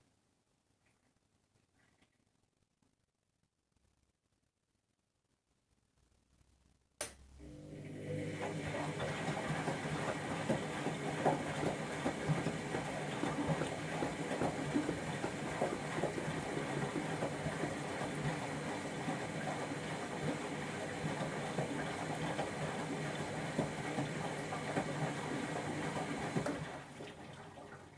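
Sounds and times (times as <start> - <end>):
washing machine motor humming: 7.0 - 27.9.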